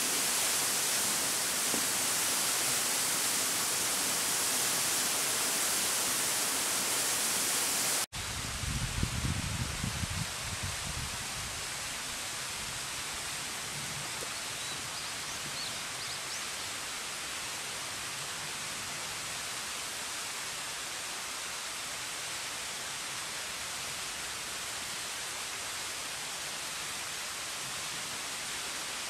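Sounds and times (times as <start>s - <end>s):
distant waterfall rushing: 0.0s - 8.1s, 11.2s - 29.0s.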